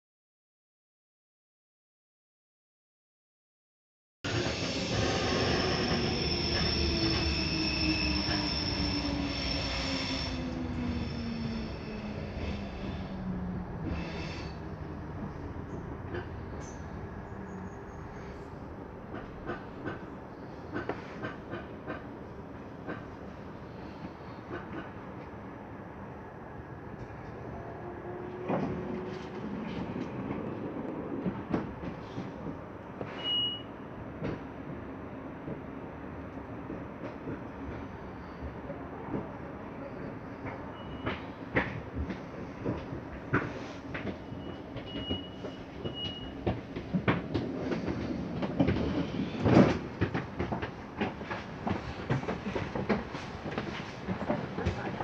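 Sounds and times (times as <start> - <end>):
train rumbling: 4.3 - 55.0
short high beep: 33.2 - 33.7.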